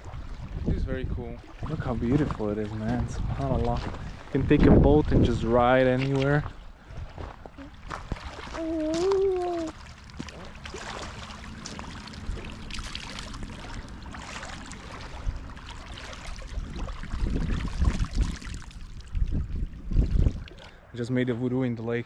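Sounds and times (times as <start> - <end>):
water trickling and dripping: 5.5 - 21.0
hands splashing water: 5.8 - 20.8
person humming: 8.6 - 9.8.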